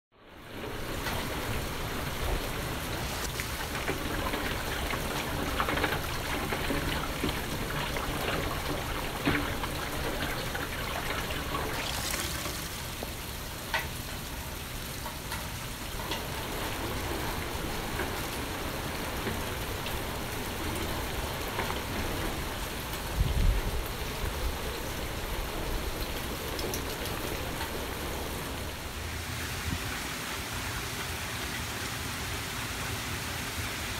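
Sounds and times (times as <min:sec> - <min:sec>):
steady rain falling: 0:00.1 - 0:33.9
sharp drips: 0:01.0 - 0:23.0.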